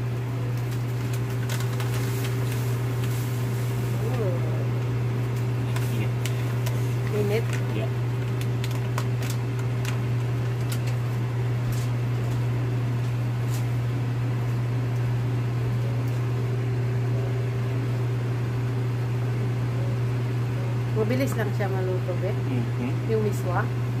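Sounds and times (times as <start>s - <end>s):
appliance fan motor hum: 0.0s - 24.0s
plastic bag crinkling: 0.5s - 4.2s, 5.4s - 11.9s.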